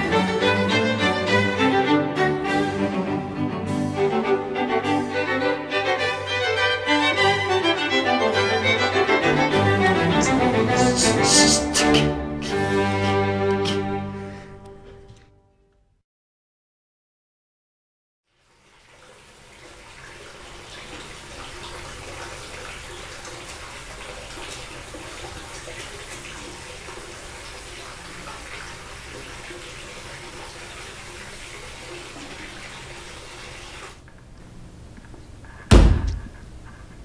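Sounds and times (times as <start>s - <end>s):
water running from a tap: 18.3s - 34.0s
loud chopping thud: 35.7s - 36.4s.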